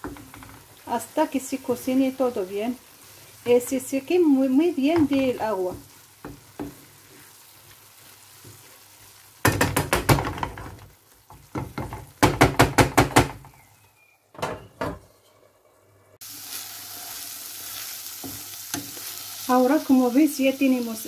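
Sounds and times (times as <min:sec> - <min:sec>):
food sizzling in a pan: 0:00.0 - 0:12.3, 0:16.2 - 0:21.0
wooden spatula scraping a pan: 0:04.8 - 0:09.1.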